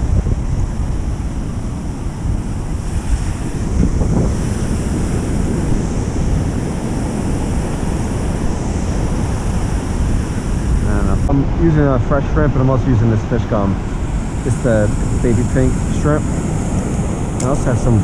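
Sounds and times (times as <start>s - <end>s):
surf breaking on sand: 0.0s - 18.0s
wind buffeting microphone: 0.0s - 18.0s.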